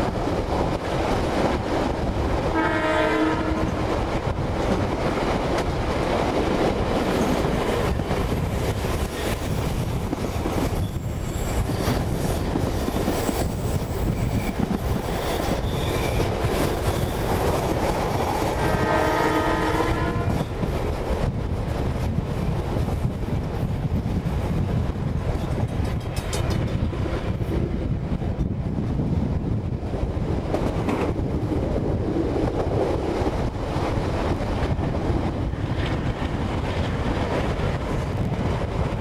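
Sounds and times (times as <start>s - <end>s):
train rumbling on track: 0.0s - 39.0s
wind on microphone: 0.0s - 39.0s
train horn: 2.5s - 3.8s, 18.5s - 20.6s.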